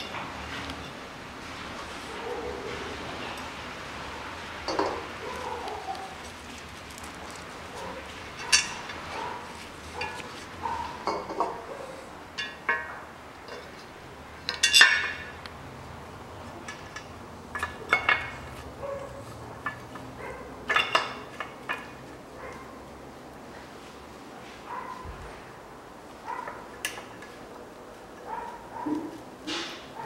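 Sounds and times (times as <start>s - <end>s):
metallic clinks of tools and parts: 8.4s - 9.0s, 14.5s - 15.3s.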